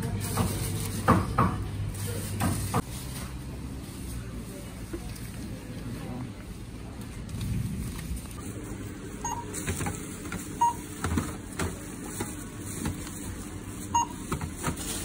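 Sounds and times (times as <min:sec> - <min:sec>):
checkout beeping: 0:08.4 - 0:15.0
tins and packages clattering: 0:09.5 - 0:15.0.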